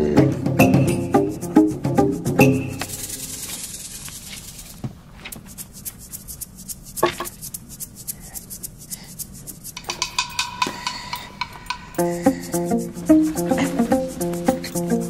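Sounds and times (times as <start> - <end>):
music: 0.0 - 3.4, 9.9 - 15.0
handling rubbing and metal clicks: 2.8 - 15.0.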